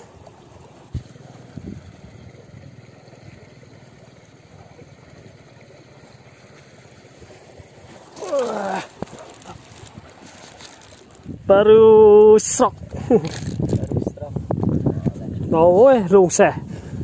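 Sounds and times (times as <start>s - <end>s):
wind rushing on microphone: 0.9s - 2.6s, 11.2s - 17.0s.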